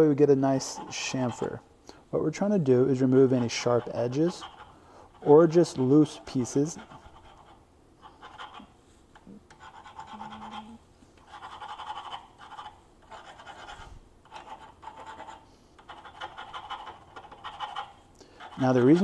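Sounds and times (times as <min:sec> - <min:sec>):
file rasping on metal: 0:03.0 - 0:08.7, 0:09.5 - 0:19.0.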